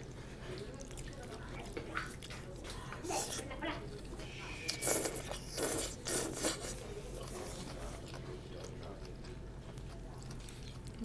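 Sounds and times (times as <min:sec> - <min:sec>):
person slurping noodles: 0:04.7 - 0:06.7.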